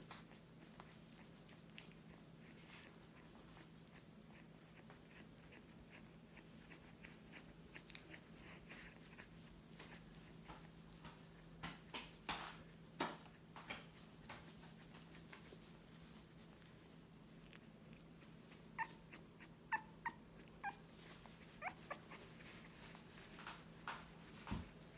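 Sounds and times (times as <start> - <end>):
puppies whimpering: 18.2 - 23.0.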